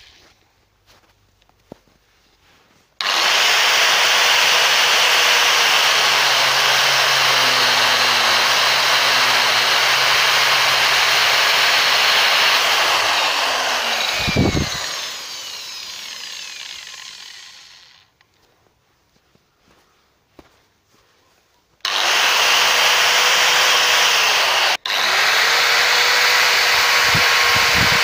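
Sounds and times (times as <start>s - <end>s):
angle grinder running: 3.0s - 18.1s, 21.8s - 28.0s
motor winding down whine: 3.0s - 18.1s, 21.9s - 28.0s.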